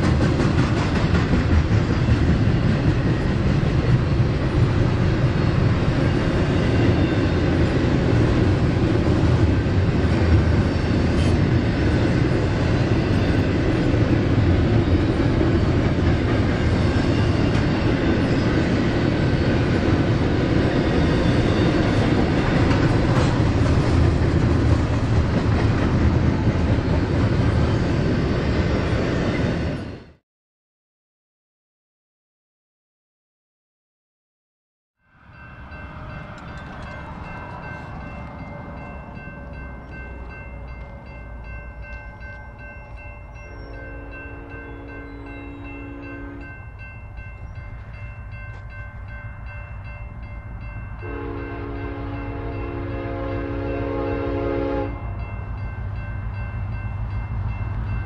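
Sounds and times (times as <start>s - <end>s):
train wheels on rail: 0.0s - 30.2s, 35.2s - 58.0s.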